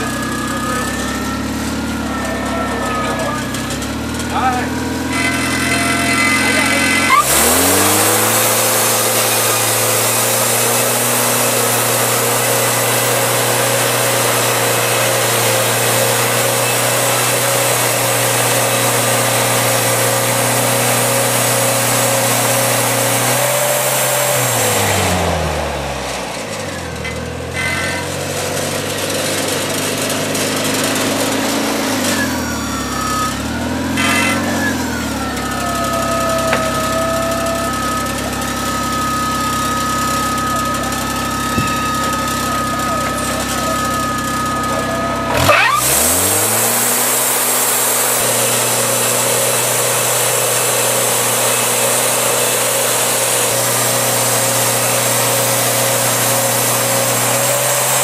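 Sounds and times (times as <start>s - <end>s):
short whine: 0.0s - 15.1s, 24.8s - 49.9s
band saw blade cutting log: 0.0s - 58.0s
sawmill engine: 0.0s - 58.0s.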